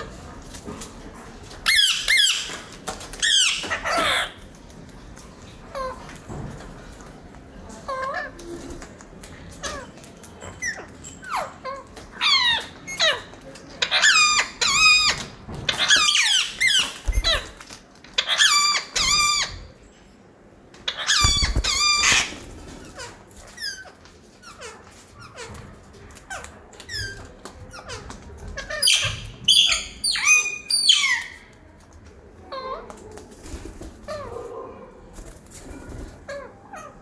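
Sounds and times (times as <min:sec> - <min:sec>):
caged birds whistling calls: 0:28.7 - 0:31.5.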